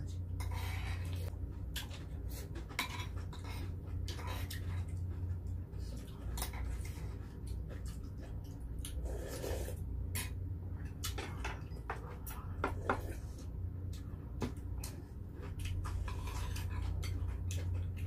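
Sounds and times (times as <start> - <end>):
slurp of soup: 9.0 - 9.8.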